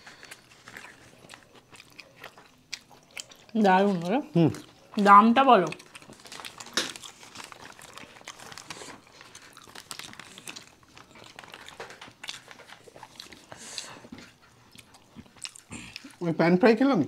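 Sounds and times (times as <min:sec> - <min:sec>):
foil trays crinkling: 0:00.0 - 0:01.6, 0:05.8 - 0:14.0
chewing and wet mouth sounds: 0:00.0 - 0:16.3.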